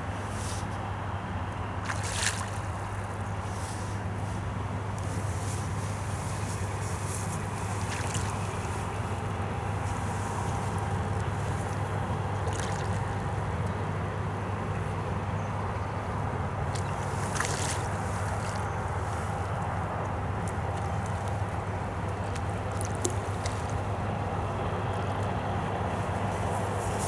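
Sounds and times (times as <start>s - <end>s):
river flowing: 0.2s - 27.0s
water splashing: 1.8s - 3.8s, 7.2s - 9.1s, 11.4s - 13.4s, 16.6s - 18.7s, 20.6s - 24.0s.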